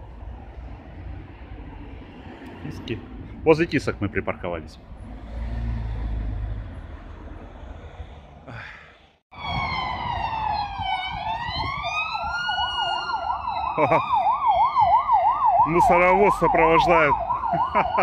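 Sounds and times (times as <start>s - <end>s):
city traffic rumbling: 0.0s - 18.0s
fast yelp siren: 9.3s - 18.0s
slow wailing siren: 9.3s - 18.0s.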